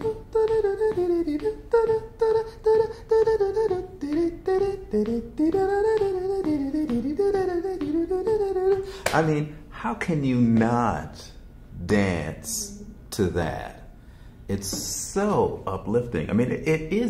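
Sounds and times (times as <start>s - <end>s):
man humming lively melody: 0.0s - 9.1s.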